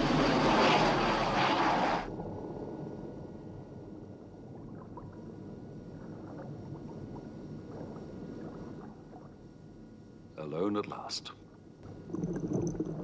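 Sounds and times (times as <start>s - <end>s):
low underwater rumble: 0.0s - 10.3s, 11.6s - 13.0s
bubbling gurgles: 4.4s - 9.7s, 11.8s - 13.0s.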